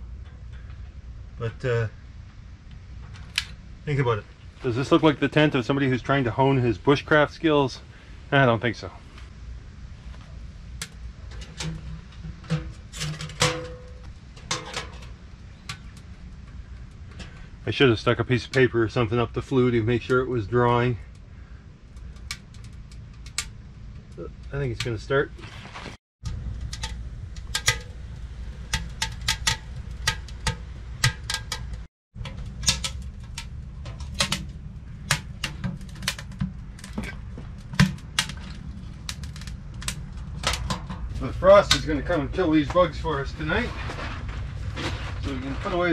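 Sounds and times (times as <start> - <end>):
fire crackling and popping: 0.0 - 8.1, 9.1 - 13.0, 14.0 - 45.9
low rumble of fire: 0.0 - 45.9
metal stove door clanking: 11.3 - 16.0, 26.6 - 38.4.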